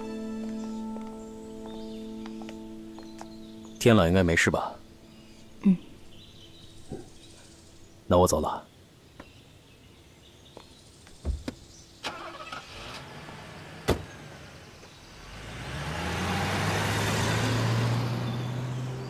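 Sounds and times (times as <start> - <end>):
car engine pulling away: 12.0 - 19.0.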